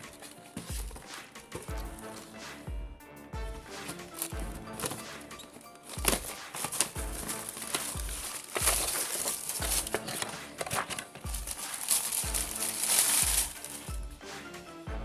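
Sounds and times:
background music with kick drum: 0:00.0 - 0:15.0
plastic bag crinkling: 0:04.1 - 0:14.1.

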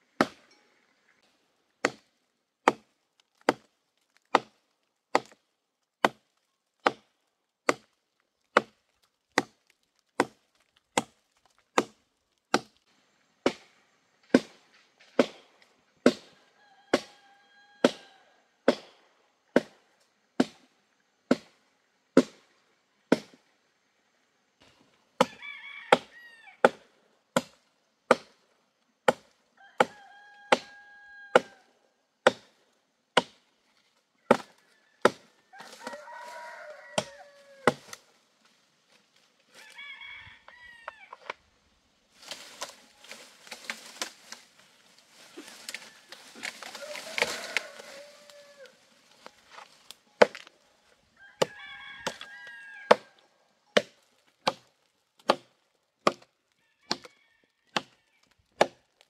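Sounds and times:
machete chopping tree trunk: 0:00.2 - 0:00.5, 0:01.8 - 0:05.4, 0:06.0 - 0:12.8, 0:13.4 - 0:13.7, 0:14.3 - 0:16.3, 0:17.8 - 0:19.0, 0:22.2 - 0:22.5, 0:23.1 - 0:23.4, 0:25.2 - 0:28.4, 0:29.0 - 0:30.7, 0:32.2 - 0:32.6, 0:33.2 - 0:33.4, 0:34.3 - 0:35.8, 0:37.0 - 0:38.0, 0:42.2 - 0:44.4, 0:45.5 - 0:48.3, 0:50.2 - 0:50.5, 0:51.4 - 0:52.3, 0:53.8 - 0:56.3, 0:56.9 - 0:57.1, 0:57.7 - 0:58.8.

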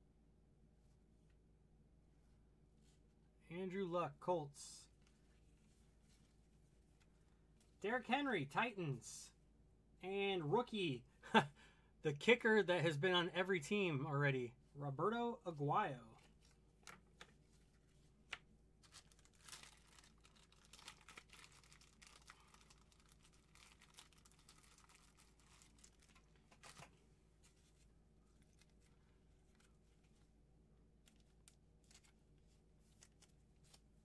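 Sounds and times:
cards and wrappers crinkling: 0:16.2 - 0:30.2, 0:31.0 - 0:34.0.

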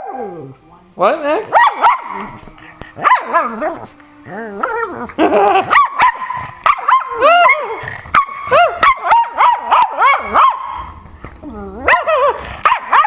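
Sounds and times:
dog whining and yowling: 0:11.4 - 0:13.0.

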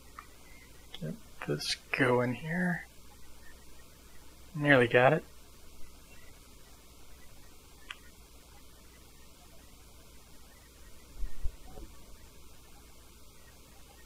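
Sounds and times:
electrical mains hum: 0:00.0 - 0:14.0
faint click: 0:07.8 - 0:08.1.

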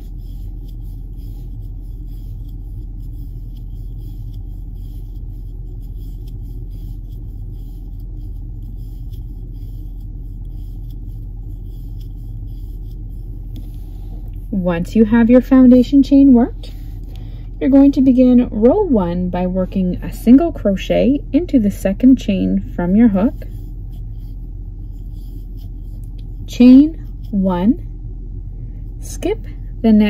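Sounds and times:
low background hum: 0:00.0 - 0:30.0.

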